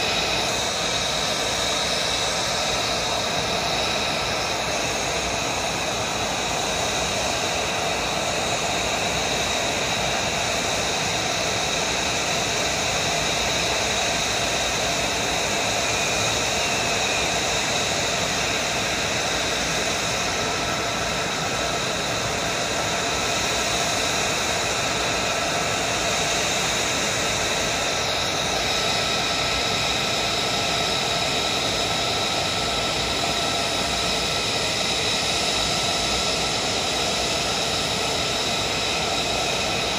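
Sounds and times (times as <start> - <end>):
jet engine idling whine: 0.0 - 39.9.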